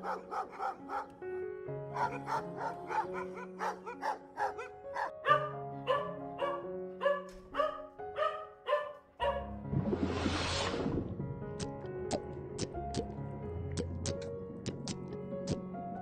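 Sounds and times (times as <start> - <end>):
dog barking: 0.0 - 1.2, 1.9 - 9.5
background music with sustained chords: 0.0 - 14.6.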